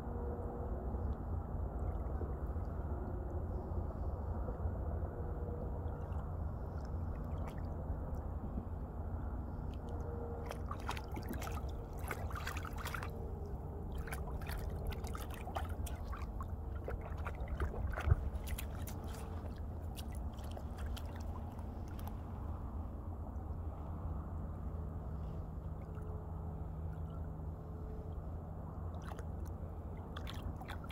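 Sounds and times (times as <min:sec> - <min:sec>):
steady low rumble: 0:00.0 - 0:30.9
dog splashing in shallow water: 0:09.7 - 0:22.2, 0:29.0 - 0:30.9.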